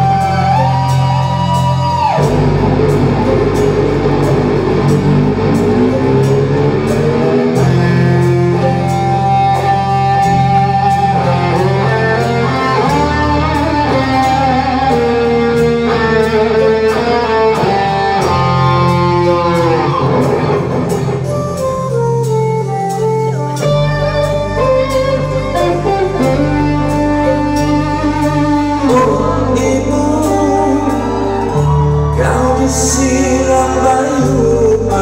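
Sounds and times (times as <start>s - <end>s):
bass: 0.0s - 35.0s
drums: 0.0s - 35.0s
electric guitar lead melody: 0.0s - 35.0s
keyboards: 0.0s - 35.0s.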